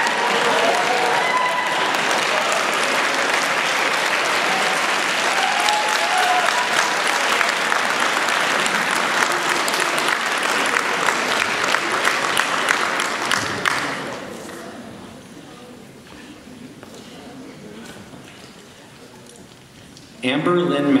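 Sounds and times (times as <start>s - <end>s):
audience applauding: 0.0s - 14.4s.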